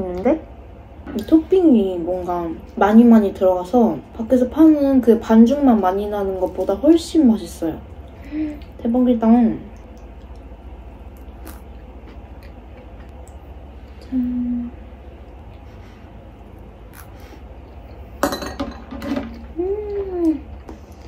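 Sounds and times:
low background hum: 0:00.0 - 0:21.0
closed-mouth hums: 0:09.6 - 0:18.1, 0:19.4 - 0:21.0.

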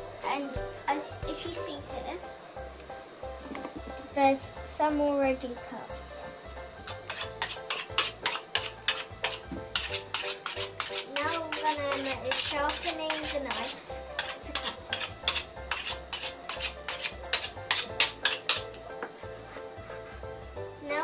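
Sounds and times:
knife scraping on sharpener: 0:06.8 - 0:18.8.

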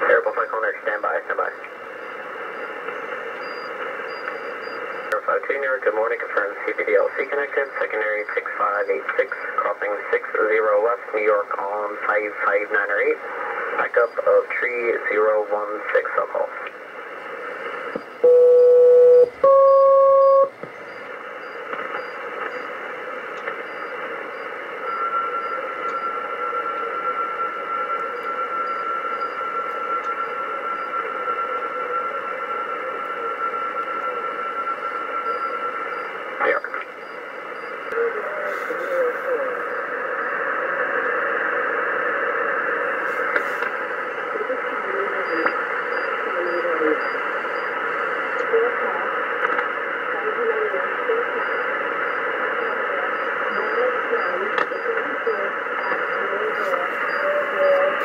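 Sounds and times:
radio static: 0:00.0 - 0:19.4, 0:20.5 - 0:58.0
loud tone bursts: 0:18.1 - 0:22.8.

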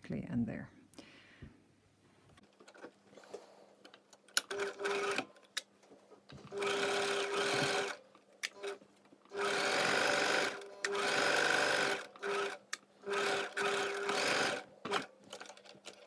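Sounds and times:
sewing machine stitching: 0:04.4 - 0:05.3, 0:06.5 - 0:16.0.

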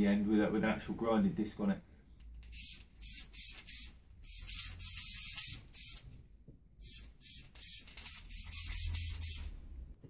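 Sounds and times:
aerosol spray can hissing: 0:02.5 - 0:06.0, 0:06.8 - 0:09.5.

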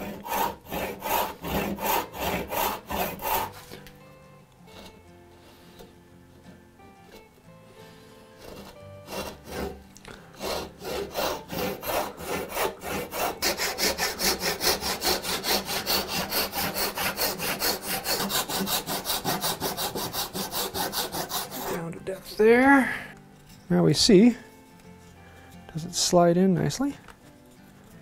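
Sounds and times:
hand saw cutting wood: 0:00.0 - 0:03.8, 0:07.9 - 0:22.0.

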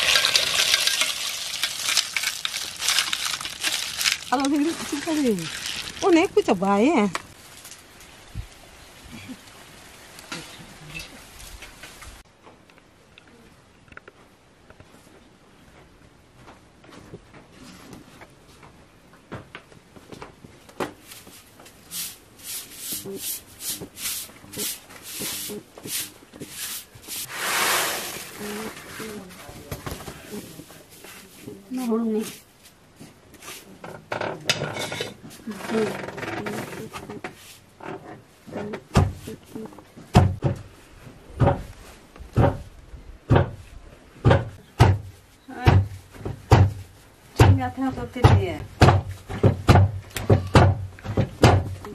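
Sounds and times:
grain swishing in a winnowing basket: 0:21.1 - 0:29.3.

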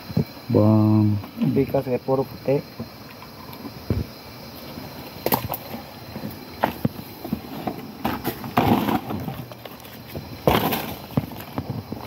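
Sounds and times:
leaves rustling and crackling: 0:04.5 - 0:12.0.

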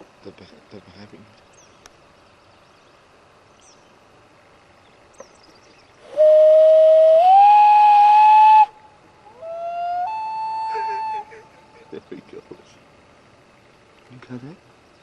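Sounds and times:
loon wailing: 0:09.3 - 0:11.8.

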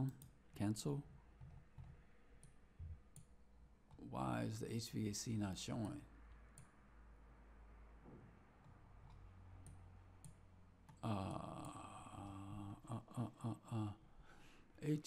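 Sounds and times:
low room noise: 0:00.0 - 0:15.0
held vocal sound: 0:11.0 - 0:15.0.

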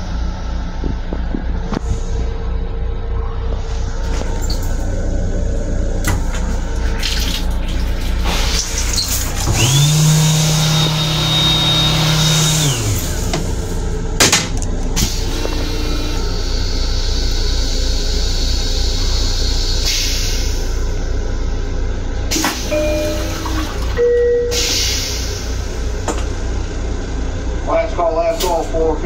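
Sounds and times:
moving train rumble: 0:00.0 - 0:29.0
toilet flush motor whining: 0:04.2 - 0:14.0, 0:14.6 - 0:19.9, 0:22.3 - 0:26.2
hiss: 0:17.0 - 0:20.8.

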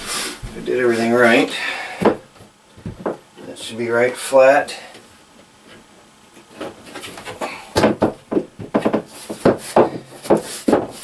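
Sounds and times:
shower base knocking on wooden boards: 0:02.0 - 0:03.2, 0:06.6 - 0:11.0.

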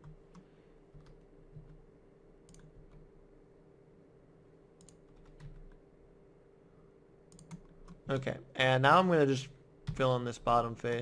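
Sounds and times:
computer keys and mouse clicking: 0:00.0 - 0:01.8, 0:02.4 - 0:03.1, 0:04.8 - 0:05.8, 0:07.3 - 0:08.2
faint steady hum: 0:00.0 - 0:11.0.

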